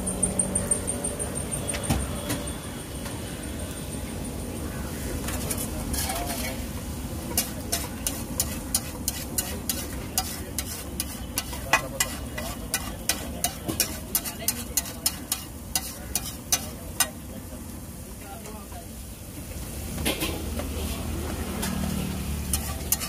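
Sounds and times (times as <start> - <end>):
metal spatula scraping griddle: 5.2 - 6.7, 7.3 - 17.2, 21.5 - 23.0.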